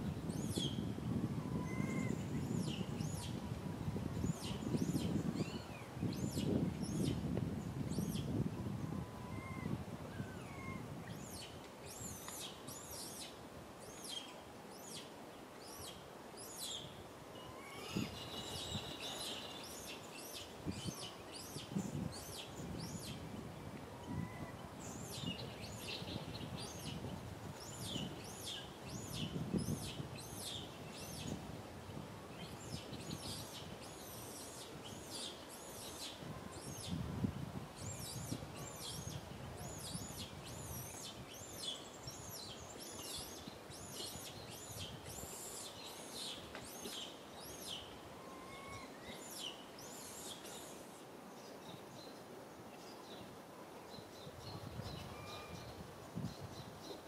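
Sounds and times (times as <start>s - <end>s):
birds singing and chirping: 1.4s - 3.4s, 15.7s - 23.2s.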